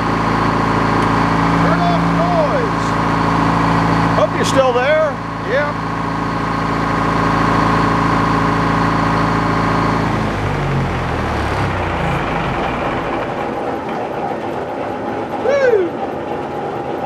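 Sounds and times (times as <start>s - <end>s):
engine running and winding down: 0.0s - 17.0s.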